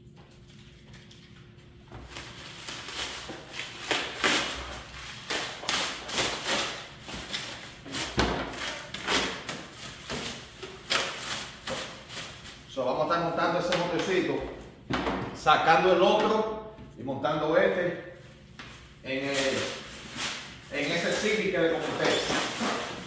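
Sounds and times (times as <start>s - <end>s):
packaging rustling: 2.0s - 7.9s, 19.2s - 23.0s.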